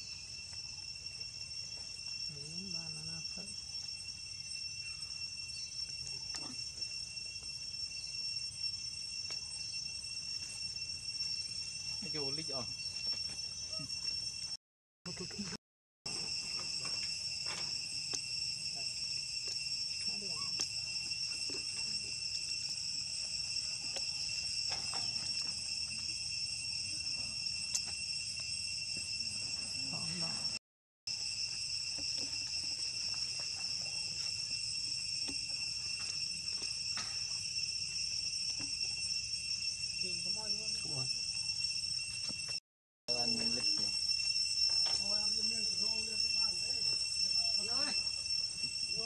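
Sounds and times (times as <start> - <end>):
high-pitched insect drone: 0.0 - 49.0.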